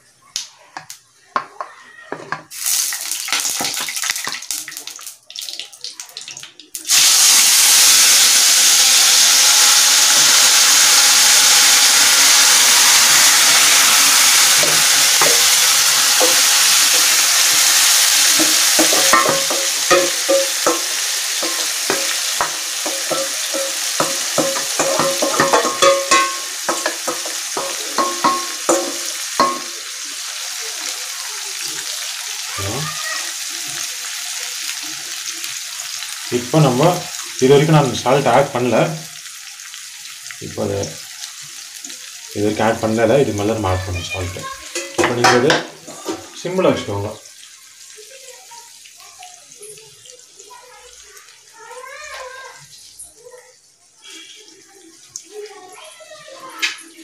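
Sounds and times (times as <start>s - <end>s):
chicken sizzling in oil: 1.2s - 57.0s
spices crackling in hot oil: 2.4s - 57.0s
steel pot clinking and scraping: 13.4s - 29.8s, 44.6s - 46.4s.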